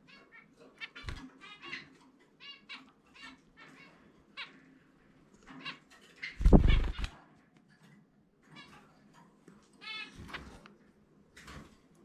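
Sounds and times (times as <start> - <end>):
wings fluttering: 0.9 - 1.3, 6.3 - 7.2
finch chirping: 5.5 - 7.1.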